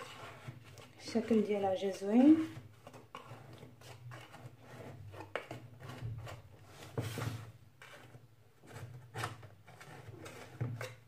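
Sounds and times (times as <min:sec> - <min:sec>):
blade scraping metal pan: 0:00.0 - 0:06.4.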